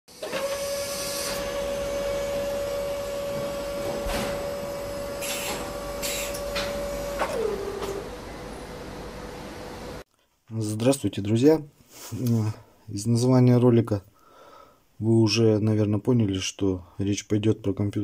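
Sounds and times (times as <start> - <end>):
machine-like whine: 0.2 - 10.0.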